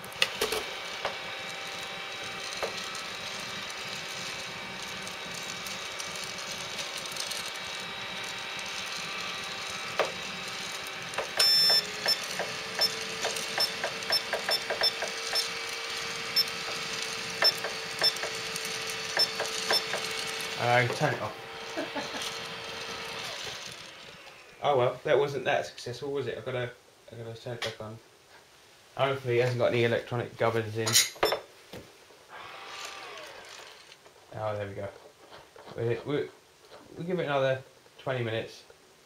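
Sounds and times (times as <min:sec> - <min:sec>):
coffee roaster humming: 0:00.0 - 0:24.9, 0:32.3 - 0:34.0
long beep: 0:11.4 - 0:13.0
short high beeps and clicks: 0:11.4 - 0:13.0, 0:19.2 - 0:20.0.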